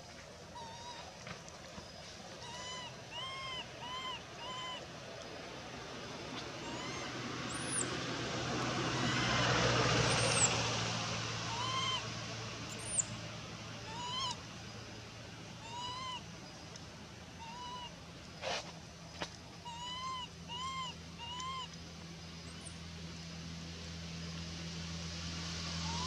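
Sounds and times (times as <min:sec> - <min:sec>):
infant monkey crying: 0:00.5 - 0:01.1, 0:02.4 - 0:04.9, 0:06.6 - 0:07.8, 0:08.9 - 0:09.4, 0:11.5 - 0:12.1, 0:13.8 - 0:14.4, 0:15.6 - 0:16.3, 0:17.4 - 0:18.0, 0:19.6 - 0:21.7.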